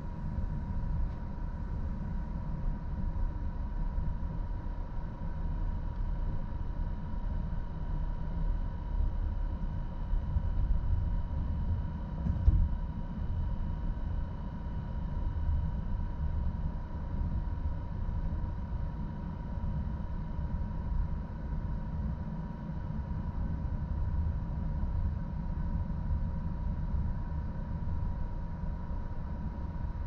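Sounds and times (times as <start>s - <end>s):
faint steady whine: 0.0s - 30.0s.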